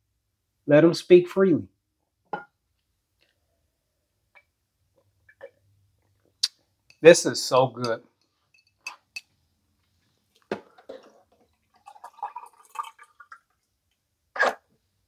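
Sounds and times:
juice dripping into glass jar: 11.2s - 13.7s.

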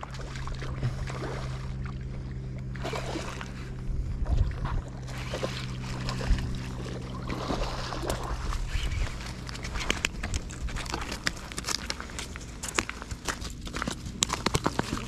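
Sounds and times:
fish splashing: 0.0s - 3.8s, 4.9s - 10.2s
steady low hum: 0.0s - 15.0s.

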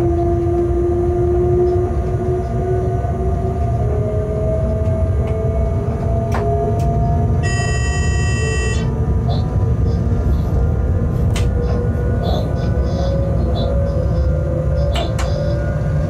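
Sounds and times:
locomotive cab rumble: 0.0s - 16.0s
whine drifting in pitch: 0.0s - 16.0s
high electronic tone: 7.4s - 8.9s.

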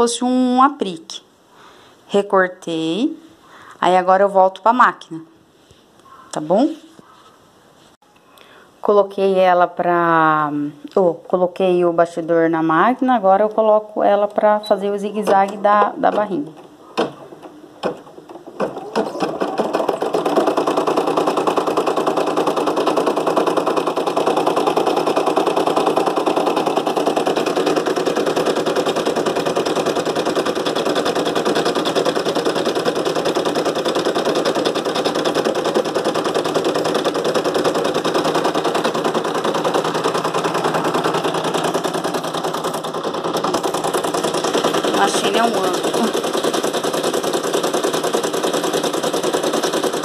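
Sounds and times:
embroidery machine stitching: 15.1s - 50.0s.

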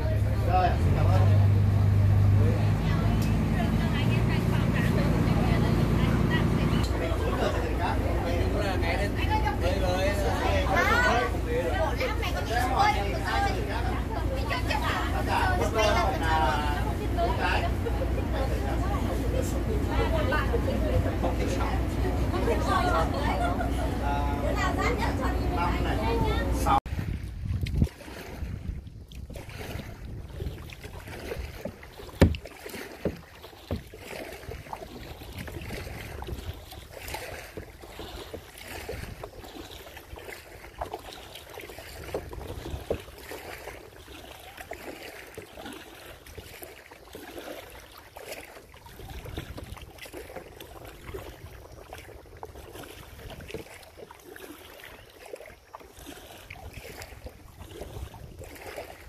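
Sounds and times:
water lapping against kayak: 0.0s - 59.0s
wind buffeting microphone: 24.4s - 40.9s, 41.8s - 43.3s, 48.8s - 53.8s, 56.5s - 59.0s.

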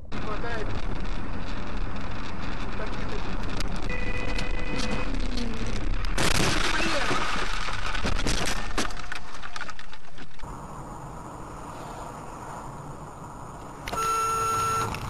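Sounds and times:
sharp clicks and rattles: 0.0s - 10.5s
road and cabin noise: 0.0s - 15.0s
car hitting and scraping curb: 6.0s - 10.4s.

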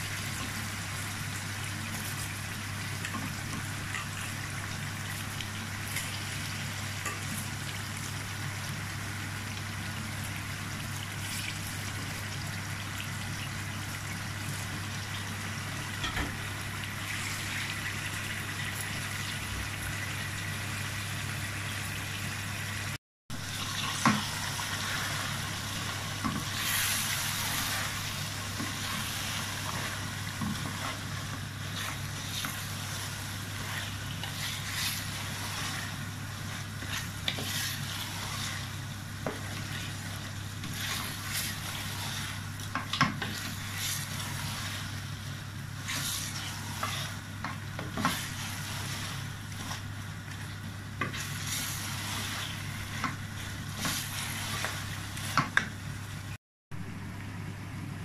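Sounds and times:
curry sizzling: 0.0s - 56.4s
wooden spoon scraping a pot: 26.2s - 45.0s, 45.8s - 50.0s, 51.0s - 55.6s.

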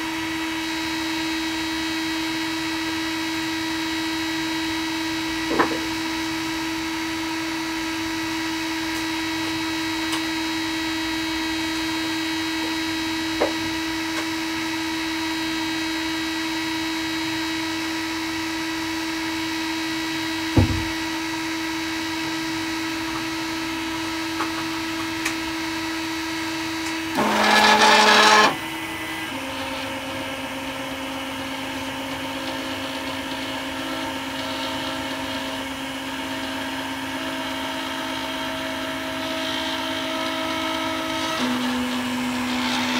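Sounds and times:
three-d printer humming and whining: 0.0s - 42.9s
low thump: 20.6s - 21.0s.

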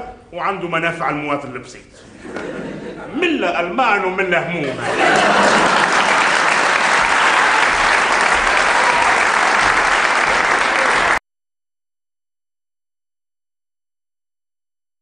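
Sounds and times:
audience applauding: 5.0s - 11.2s.

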